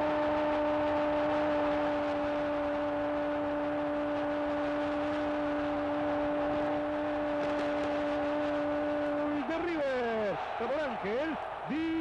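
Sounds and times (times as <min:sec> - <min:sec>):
steady electronic hum: 0:00.0 - 0:10.1
stadium crowd din: 0:06.2 - 0:12.0.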